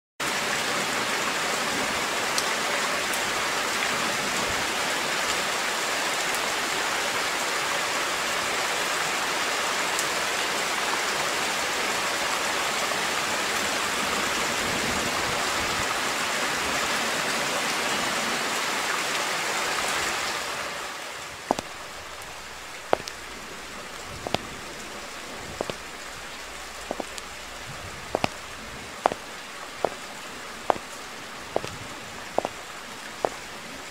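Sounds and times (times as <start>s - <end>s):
heavy rain: 0.2s - 33.9s
sharp taps: 21.5s - 23.2s, 24.2s - 24.6s, 25.5s - 26.1s, 26.8s - 27.4s, 28.1s - 29.2s, 30.7s - 31.0s, 31.6s - 31.8s, 32.4s - 32.6s.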